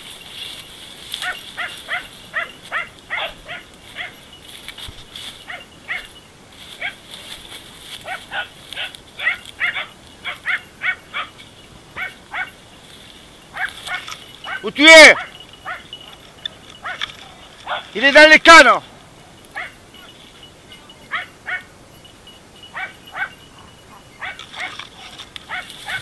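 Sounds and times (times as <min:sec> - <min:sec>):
dogs barking: 0:01.1 - 0:04.3, 0:05.4 - 0:07.1, 0:08.0 - 0:12.6, 0:13.5 - 0:18.0, 0:19.2 - 0:20.2, 0:20.9 - 0:21.8, 0:22.6 - 0:26.0.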